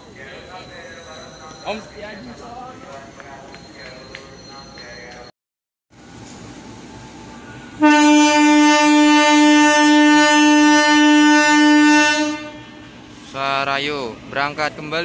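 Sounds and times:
locomotive air horn blast: 7.8s - 13.0s.

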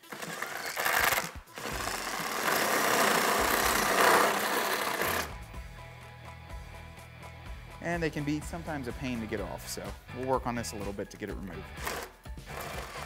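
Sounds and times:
cordless drill spinning: 0.0s - 5.4s, 11.8s - 13.0s.

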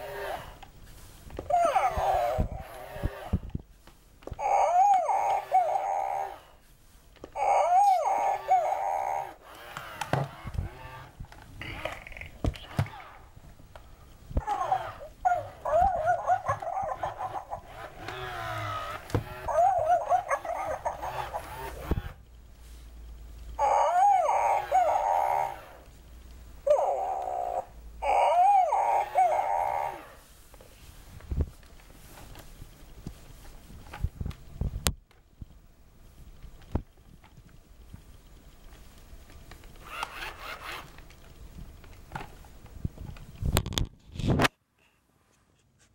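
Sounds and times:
toy dog whine: 0.0s - 0.6s, 1.5s - 3.4s, 4.2s - 6.6s, 7.3s - 11.0s, 14.4s - 22.2s, 23.6s - 25.9s, 26.6s - 30.2s
toy dog yips: 1.5s - 3.1s, 4.4s - 6.4s, 7.4s - 9.3s, 14.4s - 21.9s, 23.6s - 25.8s, 26.7s - 30.1s.

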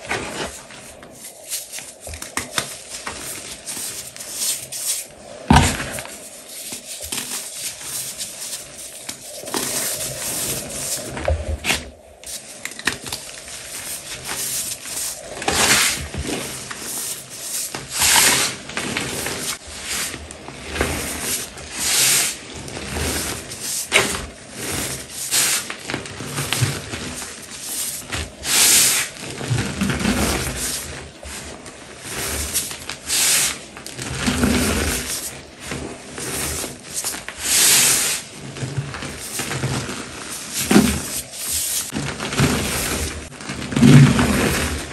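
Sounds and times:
hands crumbling chalk: 0.1s - 19.6s.

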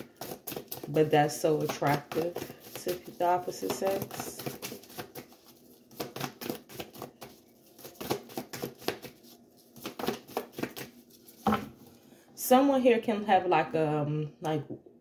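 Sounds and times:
cards being shuffled: 0.0s - 11.8s.

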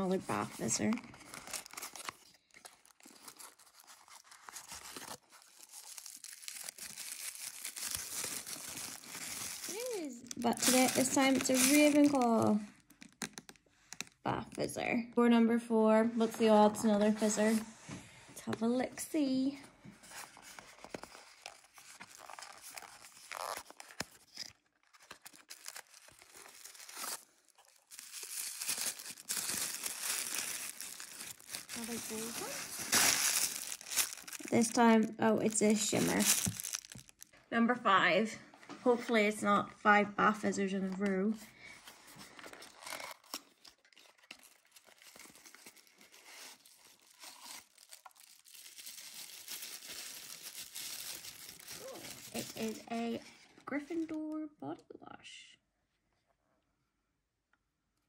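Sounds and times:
tissue paper crinkling and tearing: 0.0s - 12.9s, 20.0s - 37.3s, 41.9s - 53.4s.

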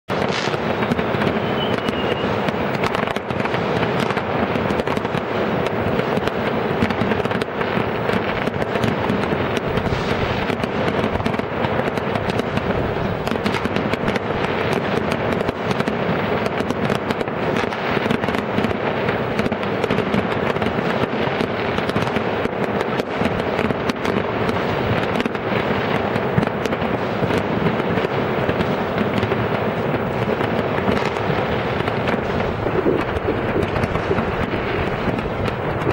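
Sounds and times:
firework high whistle: 0.1s - 4.2s, 9.8s - 10.7s
fireworks bangs and crackles: 0.1s - 35.9s.

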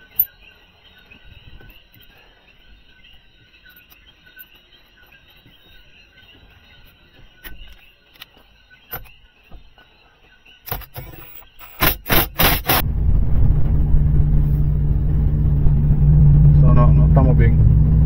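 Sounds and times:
loud sharp noises: 10.6s - 13.0s
car engine starting and running: 11.8s - 18.0s.

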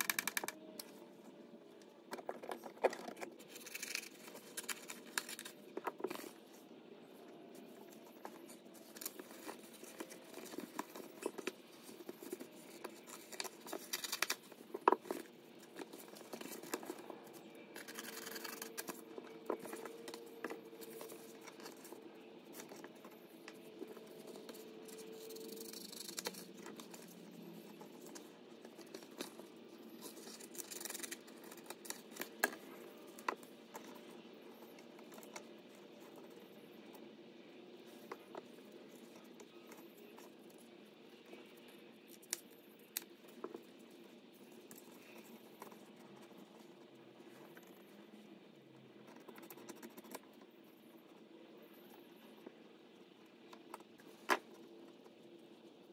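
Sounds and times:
faint irregular clicks: 0.0s - 1.0s.

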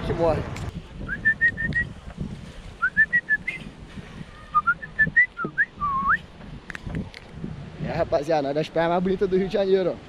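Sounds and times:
whistled tune: 1.1s - 1.9s, 2.8s - 3.7s, 4.5s - 6.2s.

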